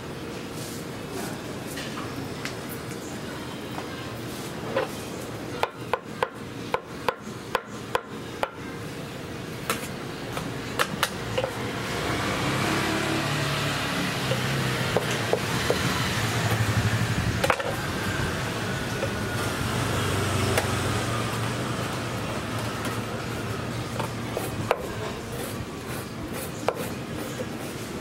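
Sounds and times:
rushing background noise: 6.2 - 28.0
knife chopping on wooden board: 24.0 - 27.3.

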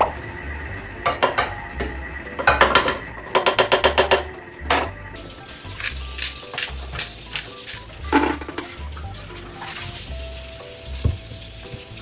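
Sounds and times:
background music with low beat: 0.0 - 12.0
food sizzling in frying: 5.2 - 12.0.

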